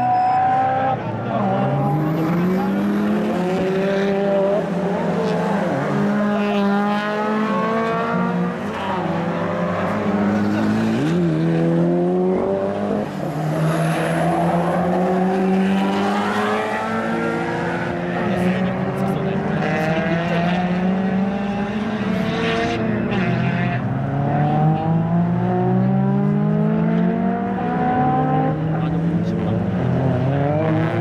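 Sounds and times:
car engine revving: 0:00.0 - 0:31.0.

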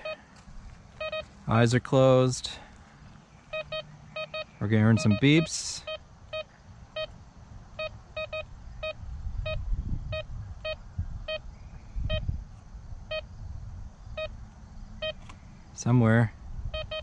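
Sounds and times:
metal detector beeps: 0:00.0 - 0:00.3, 0:01.0 - 0:01.3, 0:03.5 - 0:07.2, 0:07.8 - 0:11.5, 0:12.1 - 0:12.3, 0:15.0 - 0:15.3, 0:16.7 - 0:17.0.

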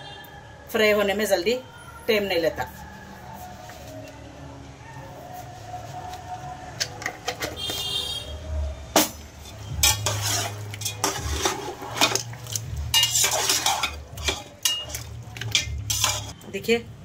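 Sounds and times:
metal spoon scraping a steel pot: 0:09.0 - 0:16.4
meat browning in oil: 0:09.7 - 0:16.4.

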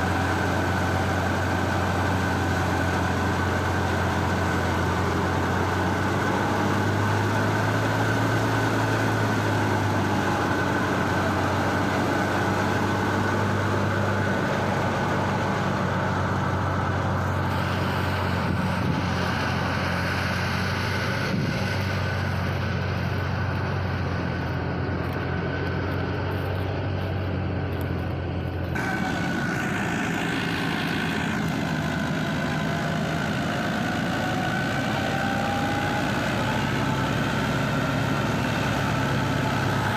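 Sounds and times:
tractor engine drone: 0:00.0 - 0:39.9
threshing drum whine: 0:28.3 - 0:39.9.

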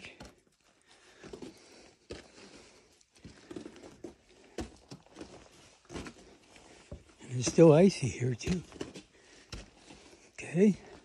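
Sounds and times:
footsteps on wooden stairs: 0:03.2 - 0:11.0.

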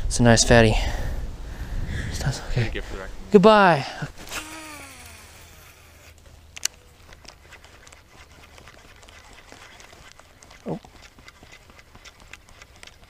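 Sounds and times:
fishing reel clicks: 0:04.3 - 0:12.7.

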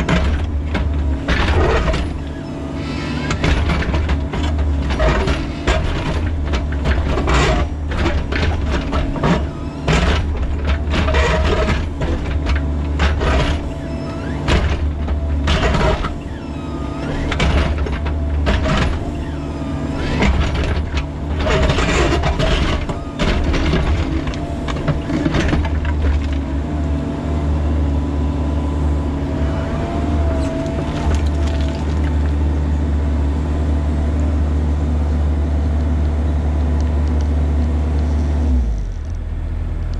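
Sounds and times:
hydraulic whine: 0:00.0 - 0:26.7, 0:29.2 - 0:33.0
diesel engine under load: 0:00.0 - 0:39.9.

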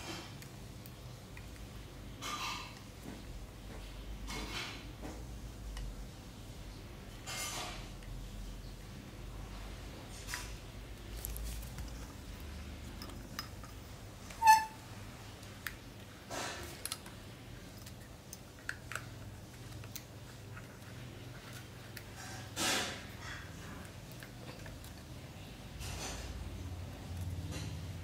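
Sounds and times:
hands fiddling with plastic connector: 0:10.3 - 0:25.3.

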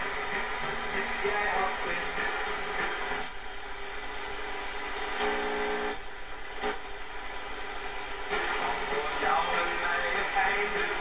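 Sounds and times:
pitched radio signal: 0:00.0 - 0:03.4, 0:08.3 - 0:11.0
radio hiss and static: 0:00.0 - 0:11.0.

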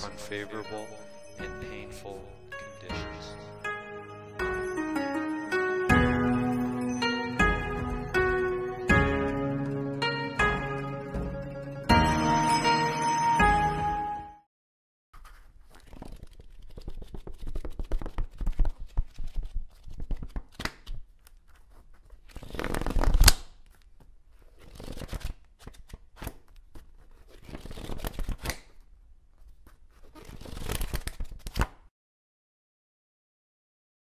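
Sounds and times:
pages slapping: 0:15.2 - 0:28.8, 0:29.4 - 0:31.9
book pages rustling: 0:15.2 - 0:31.8.

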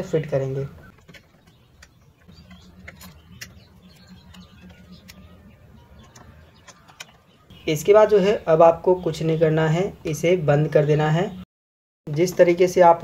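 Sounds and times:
handling noises: 0:00.8 - 0:07.5.

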